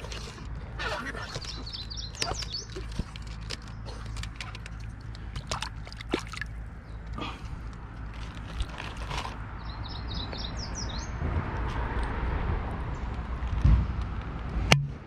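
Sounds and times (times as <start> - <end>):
water sloshing and dripping: 0.0 - 9.6
birds chirping: 0.0 - 11.2
fish splashing at water surface: 4.4 - 6.6.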